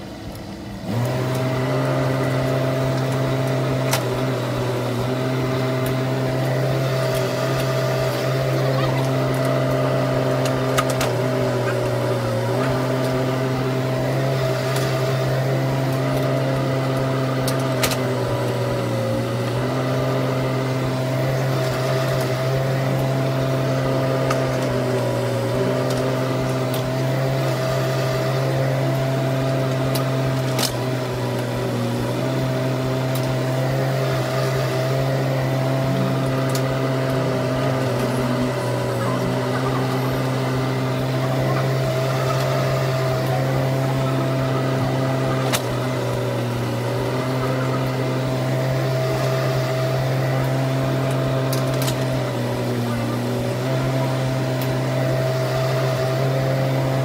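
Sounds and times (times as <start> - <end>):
mini excavator diesel engine: 0.0 - 57.0.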